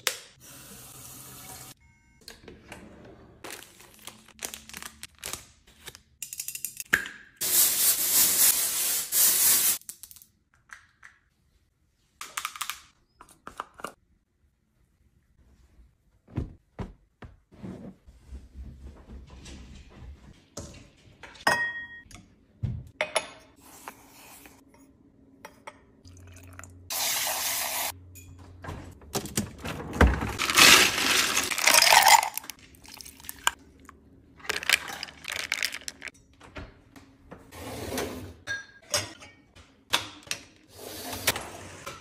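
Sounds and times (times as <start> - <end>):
dishes clinking: 21.4 - 22.1
ice cubes rattling in a bin: 30.3 - 33.5, 34.4 - 36.1.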